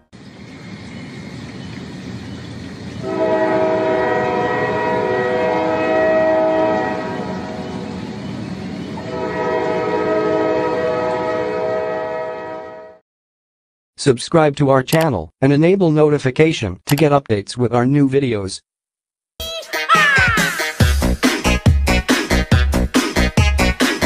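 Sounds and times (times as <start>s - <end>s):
train running: 0.0s - 13.0s
steam locomotive whistle blasts: 3.0s - 7.9s, 9.0s - 13.0s.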